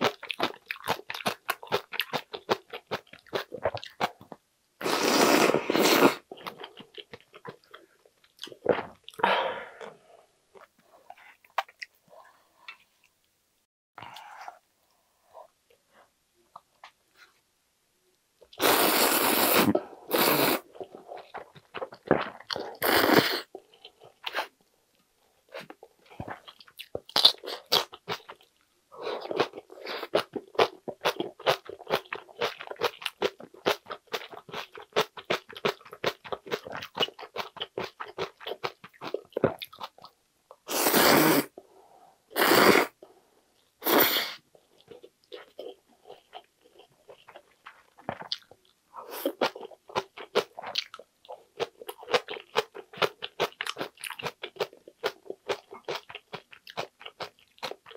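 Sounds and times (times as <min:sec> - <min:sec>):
loud slurps of noodles: 0:04.8 - 0:06.2, 0:18.6 - 0:20.7, 0:40.7 - 0:41.5, 0:42.4 - 0:43.0.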